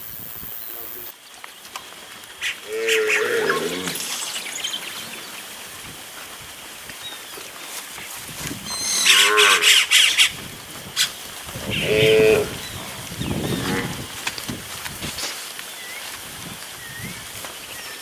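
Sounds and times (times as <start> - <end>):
cattle mooing: 13.5 - 14.0.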